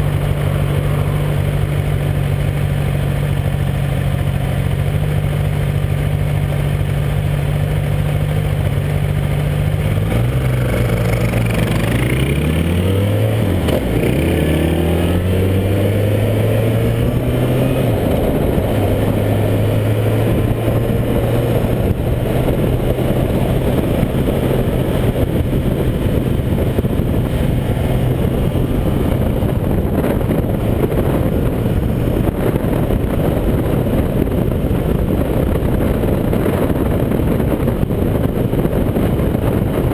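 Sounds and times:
motorcycle engine: 0.0s - 39.9s
wind rushing past microphone: 8.6s - 39.9s.

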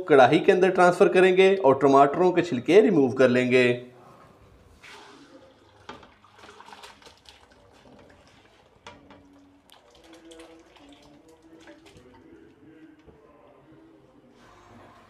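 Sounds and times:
liquid splashing and pouring: 4.7s - 12.8s.

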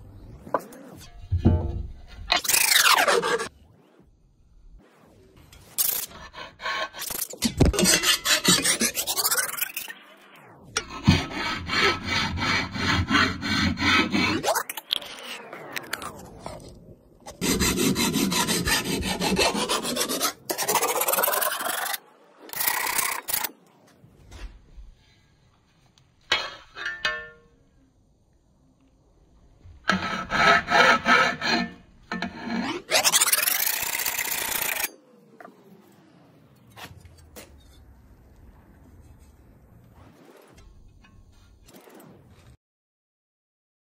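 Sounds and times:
hand file rasping on metal: 5.9s - 9.6s, 10.8s - 14.5s, 17.4s - 21.9s, 29.9s - 34.9s.

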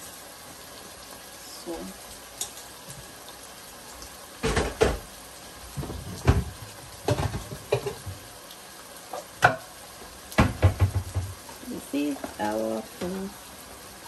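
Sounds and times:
kitchenware knocking and rattling: 5.8s - 8.2s, 10.4s - 11.3s.

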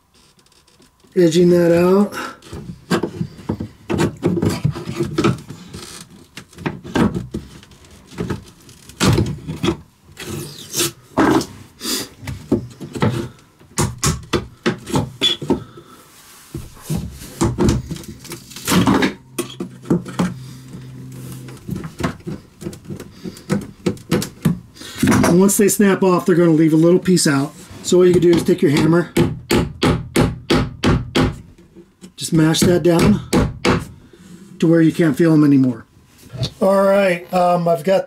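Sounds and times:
wood creaking: 0.0s - 11.5s, 16.6s - 25.6s.

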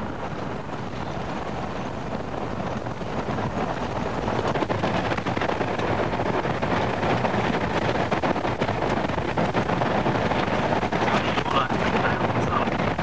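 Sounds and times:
horses galloping: 0.0s - 13.0s
wind noise on microphone: 0.0s - 13.0s.

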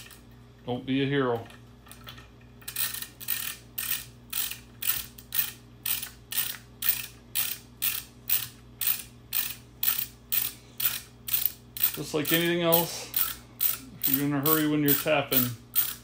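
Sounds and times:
ratchet tap wrench clicking: 2.7s - 12.5s, 13.2s - 16.0s.

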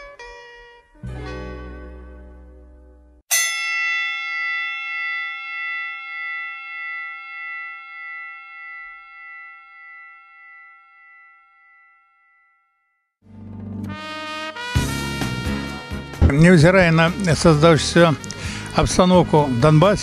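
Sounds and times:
struck bell-like chime ringing: 3.3s - 13.2s.

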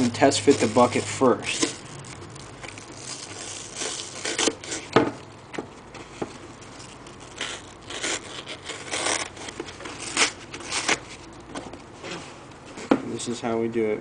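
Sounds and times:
foam scraping and tearing: 0.0s - 5.0s, 6.0s - 11.3s.

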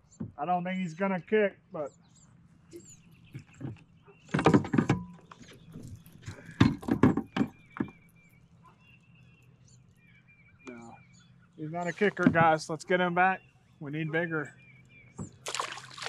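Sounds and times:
knocks and clatter: 3.3s - 8.1s.

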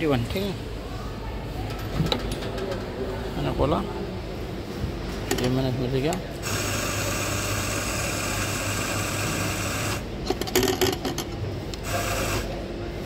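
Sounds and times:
coffee grinder whirring: 6.4s - 10.1s, 11.8s - 12.5s.

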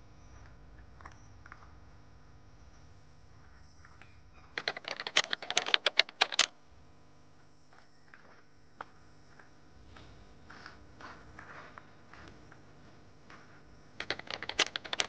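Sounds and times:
keyboard typing clicks: 4.6s - 6.5s, 14.0s - 15.0s.

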